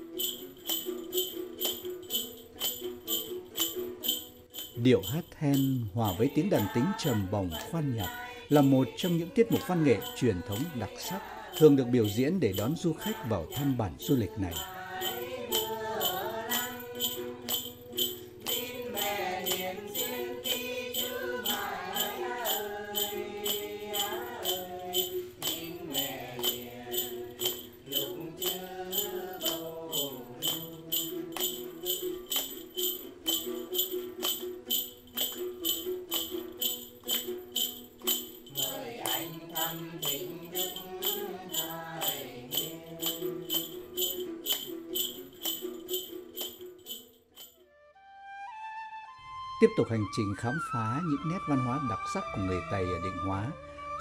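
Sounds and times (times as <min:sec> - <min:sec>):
jingling bell rattle: 0:00.0 - 0:47.6
people singing: 0:00.1 - 0:46.2
plucked lutes: 0:09.0 - 0:47.0.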